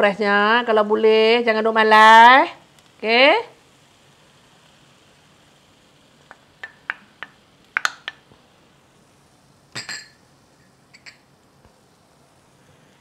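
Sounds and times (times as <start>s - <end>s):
ceramic bowl and utensils clinking: 9.8s - 10.2s.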